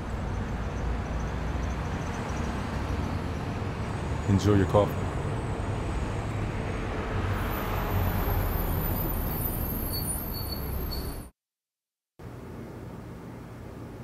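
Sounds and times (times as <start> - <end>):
street traffic rumble: 0.0 - 11.3.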